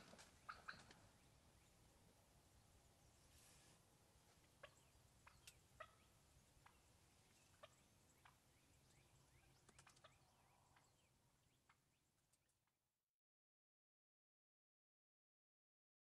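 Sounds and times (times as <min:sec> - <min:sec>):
wild turkey clucks: 0:00.0 - 0:01.1, 0:04.4 - 0:11.9.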